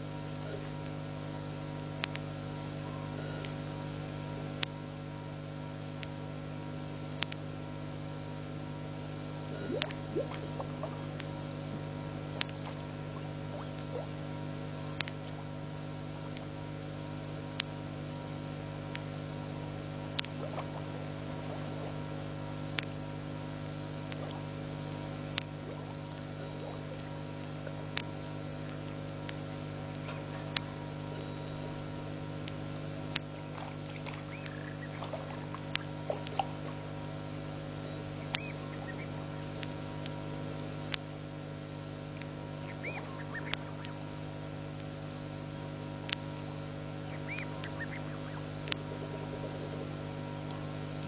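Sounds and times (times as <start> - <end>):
steady low hum: 0.0 - 51.0
sharp clicks: 7.1 - 7.4, 12.3 - 12.8
frog high pips: 38.2 - 40.0, 42.7 - 44.2.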